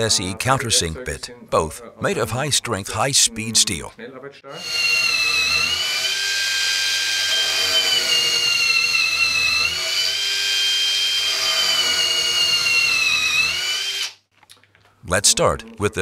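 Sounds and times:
cordless drill boring into wood: 4.6 - 14.2.

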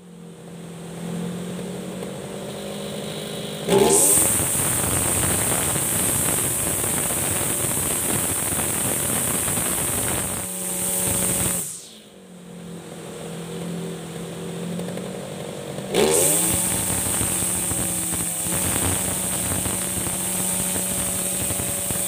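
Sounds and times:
brush cutter engine revving: 2.5 - 12.0, 15.8 - 22.0.

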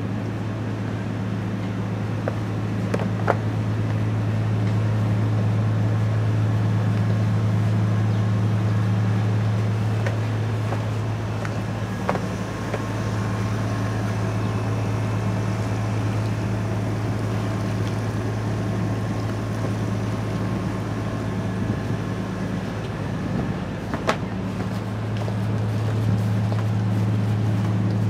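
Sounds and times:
boat engine low drone: 0.0 - 28.0.

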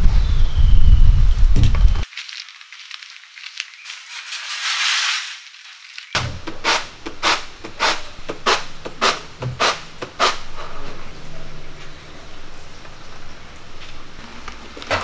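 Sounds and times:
peanuts rustling in a basket: 2.1 - 8.0.

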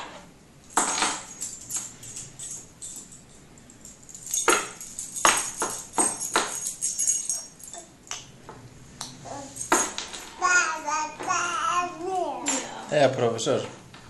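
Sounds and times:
metal rattle toy jingling: 1.3 - 7.9.

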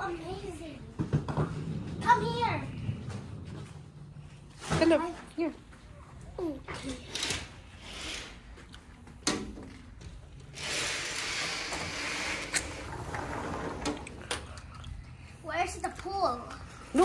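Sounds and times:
sliding glass door rolling open: 10.5 - 14.6.

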